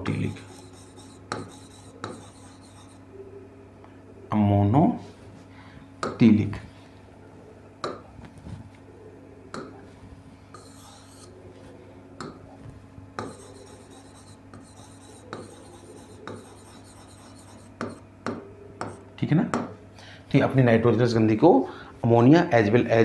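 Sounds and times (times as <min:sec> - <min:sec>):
marker scratching on whiteboard: 0:00.0 - 0:03.0, 0:10.6 - 0:11.3, 0:13.2 - 0:18.0
marker tip tapping board: 0:01.3 - 0:02.2.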